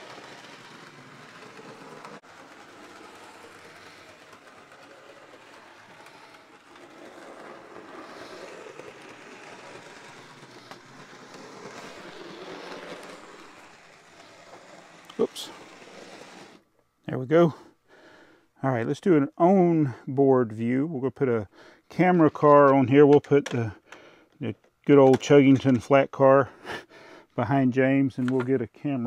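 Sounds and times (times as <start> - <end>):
model train running on rails: 0.0 - 16.6.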